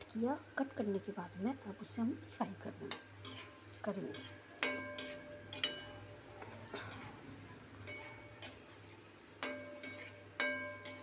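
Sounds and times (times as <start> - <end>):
oil sizzling: 0.0 - 11.0
metal spatula clinking on a pan: 2.9 - 7.2, 7.8 - 8.7, 9.4 - 11.0.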